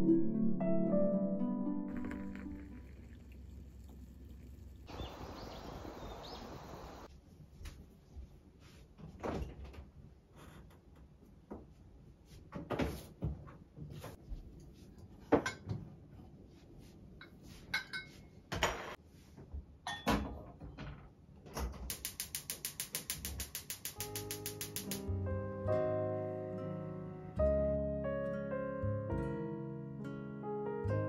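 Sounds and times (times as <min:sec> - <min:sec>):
dishes knocking and clinking: 0:15.3 - 0:15.9, 0:17.7 - 0:19.0
gas hob igniter clicking: 0:21.9 - 0:25.0.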